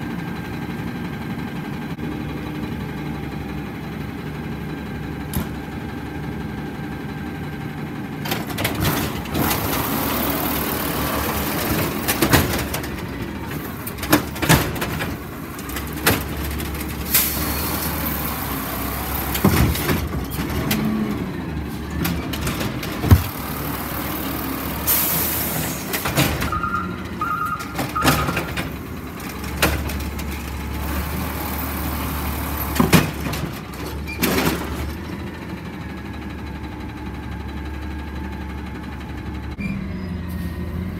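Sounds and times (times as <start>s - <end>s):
garbage truck engine drone: 0.0s - 40.9s
carts clanking and banging: 8.2s - 35.2s.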